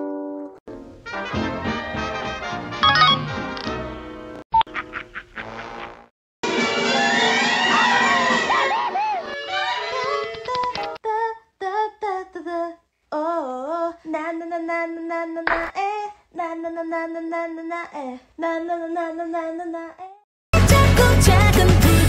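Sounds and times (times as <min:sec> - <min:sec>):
woman singing unaccompanied: 0:10.4 - 0:22.0.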